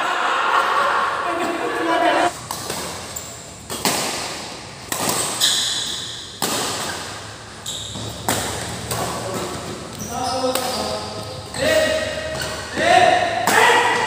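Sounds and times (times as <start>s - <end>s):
rackets hitting shuttlecock: 2.4s - 10.9s
shoes squeaking on court: 2.5s - 3.9s, 5.0s - 6.2s, 6.8s - 12.8s.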